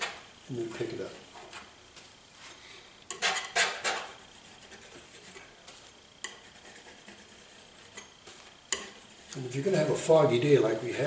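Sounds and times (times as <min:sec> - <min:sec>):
palette knife scraping paint: 0:03.1 - 0:05.5.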